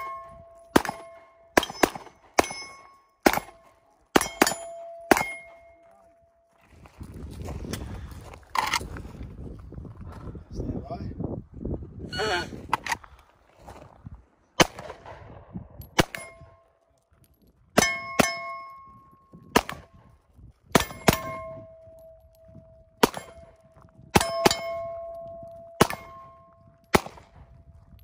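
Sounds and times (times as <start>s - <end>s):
steel targets ringing: 0.0s - 3.6s, 4.2s - 6.0s, 17.8s - 18.9s, 20.8s - 22.2s, 24.1s - 26.6s
pistol shots: 0.0s - 5.8s, 14.6s - 16.5s, 19.5s - 20.1s, 20.7s - 21.9s, 23.0s - 27.5s.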